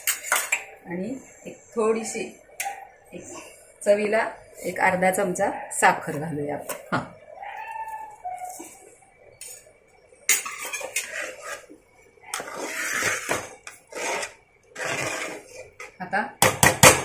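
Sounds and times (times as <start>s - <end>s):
spoon scraping in pot: 0.0s - 0.7s, 10.3s - 16.0s
spoon knocking in pot: 16.4s - 17.0s.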